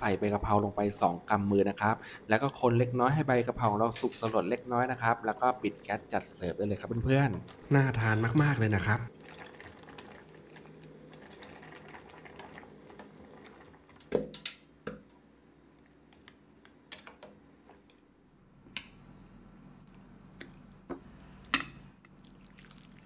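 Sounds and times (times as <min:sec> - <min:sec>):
broth sloshing and dripping: 0:09.1 - 0:14.0, 0:22.2 - 0:23.0.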